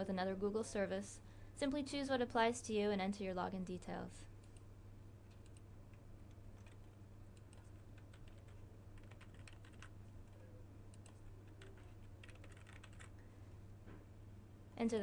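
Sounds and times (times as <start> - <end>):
steady low hum: 0.0 - 15.0
keyboard typing: 5.3 - 5.7, 6.3 - 13.2.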